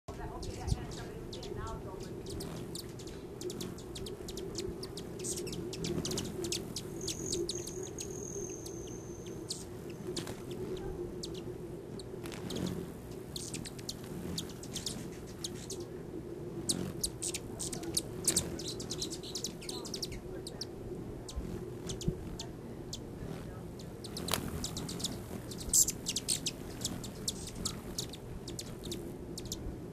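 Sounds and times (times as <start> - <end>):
hummingbird chip calls: 0.1 - 29.7
steady low hum: 0.1 - 29.9
thin high whistle: 6.1 - 9.7.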